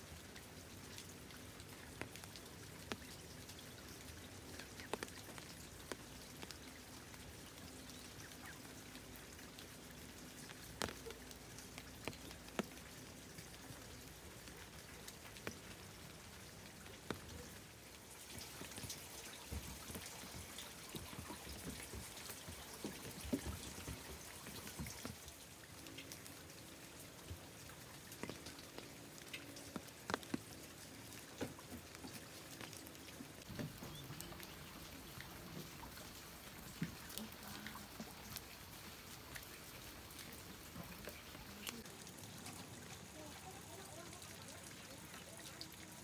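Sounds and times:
light rain patter: 0.0s - 46.0s.

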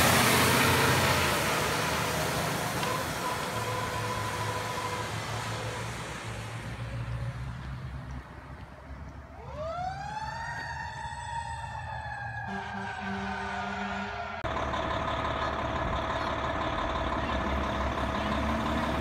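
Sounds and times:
truck engine running: 0.0s - 6.8s, 12.5s - 19.0s
fire truck siren wailing: 0.0s - 7.3s, 9.2s - 19.0s
road noise: 0.0s - 19.0s.

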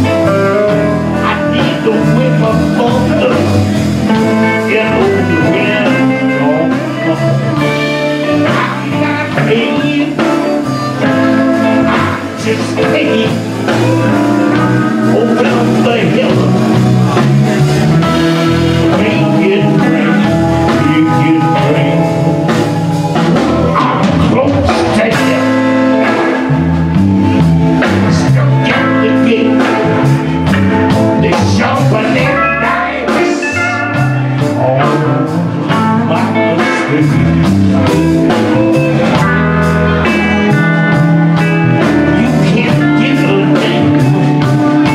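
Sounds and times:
man singing: 0.0s - 26.6s, 27.3s - 44.9s
drums: 0.0s - 44.9s
electric guitars: 0.0s - 44.9s
keyboard: 0.0s - 44.9s
violin: 9.9s - 12.5s.

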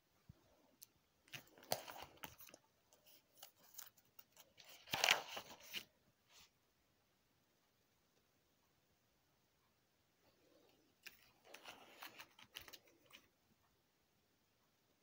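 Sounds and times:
plastic card sleeves crinkling: 1.3s - 5.9s, 11.0s - 13.3s.

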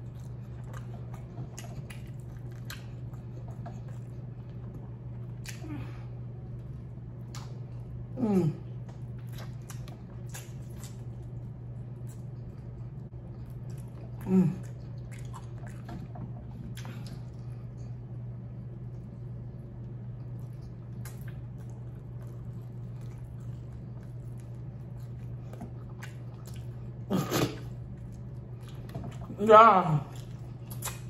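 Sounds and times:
wet chewing and lip smacks: 0.0s - 5.6s, 7.2s - 7.9s, 8.9s - 18.0s, 19.8s - 27.0s, 30.1s - 31.0s
steady low hum: 0.0s - 31.0s
person humming: 8.2s - 8.7s.

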